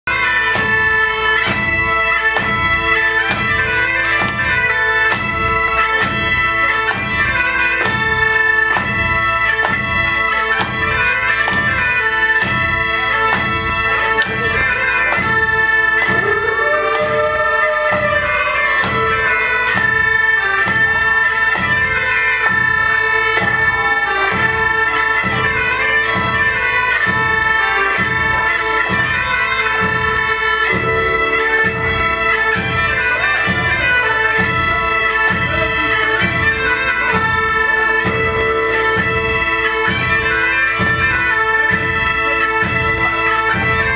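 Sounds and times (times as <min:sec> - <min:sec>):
bagpipe melody with drone: 0:00.1 - 0:43.9
steady drum beat: 0:00.5 - 0:29.0.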